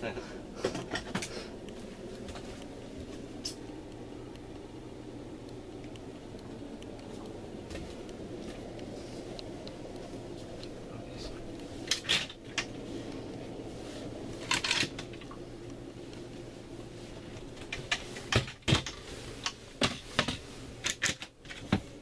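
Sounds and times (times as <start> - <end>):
low hum: 0.0 - 20.9.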